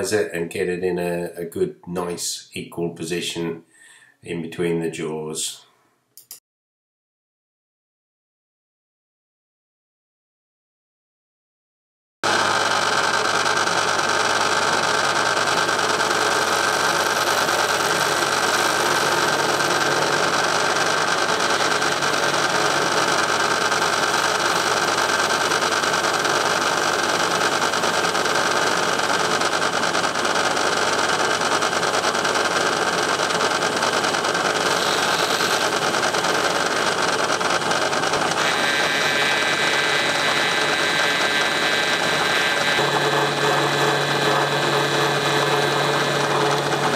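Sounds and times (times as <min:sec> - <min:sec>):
metal lathe humming: 0:12.3 - 0:46.9.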